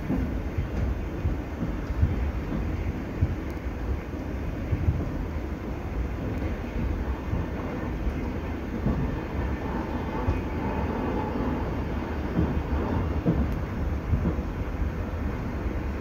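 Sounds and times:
train rumble inside carriage: 0.0s - 16.0s
wheels knocking on track: 12.2s - 14.5s.

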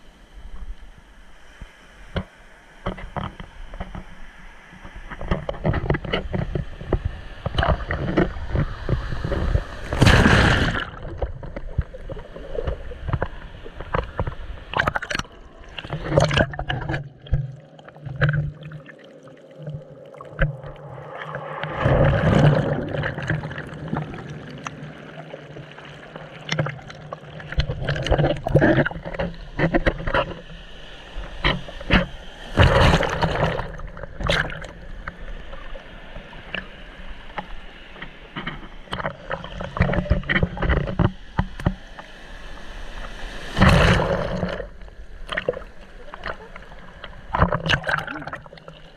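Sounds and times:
underwater sloshing and gurgling: 0.0s - 48.9s
loud splash: 9.8s - 11.1s, 20.6s - 25.3s, 43.5s - 44.7s.

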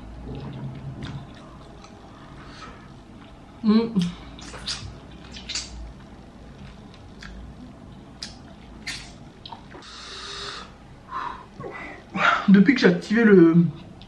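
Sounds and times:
wet mouth clicks and smacks: 4.0s - 5.8s, 8.2s - 9.8s.

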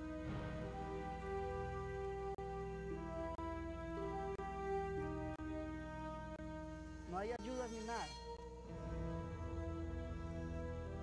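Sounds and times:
slow ambient background music: 0.0s - 11.0s.

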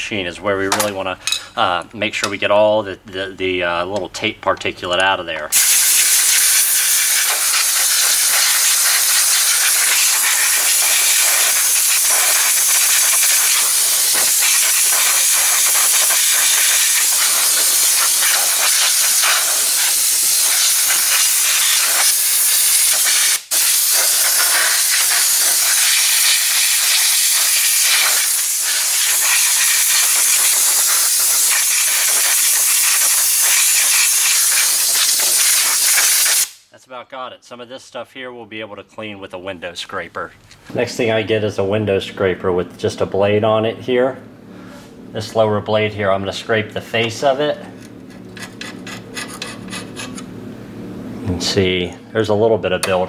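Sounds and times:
air blow gun hissing: 5.5s - 36.7s.

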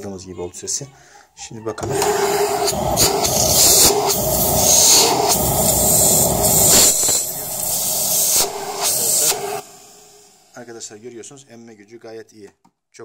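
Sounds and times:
vacuum cleaner running: 1.8s - 10.7s.

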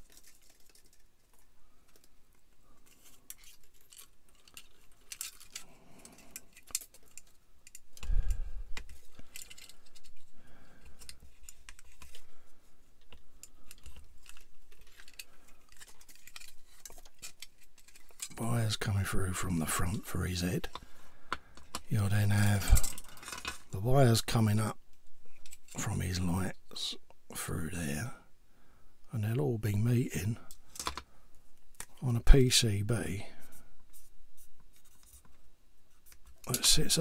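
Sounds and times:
plastic model parts clicking: 0.0s - 10.3s, 13.0s - 18.4s, 30.5s - 31.1s.

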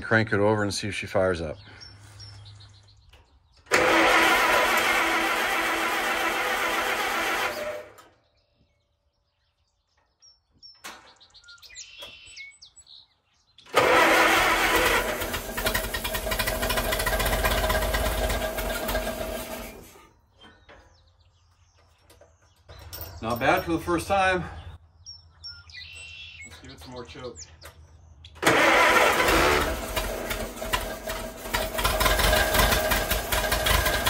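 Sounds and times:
engine starter cranking: 3.6s - 8.1s, 13.7s - 20.1s, 28.4s - 34.0s.

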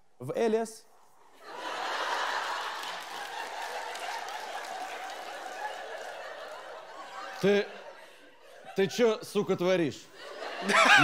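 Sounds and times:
audience laughing: 1.4s - 11.0s
audience clapping: 1.8s - 7.6s.

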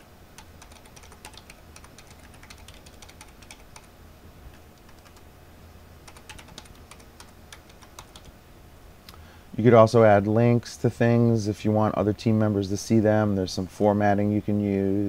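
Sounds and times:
steady low hum: 0.0s - 15.0s
keyboard typing: 0.4s - 3.9s, 4.5s - 5.3s, 6.0s - 8.3s.

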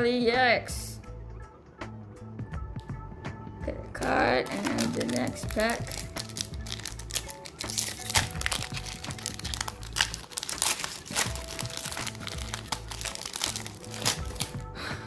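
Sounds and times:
background music: 0.0s - 15.0s
foil wrapper crinkling: 4.4s - 14.6s.

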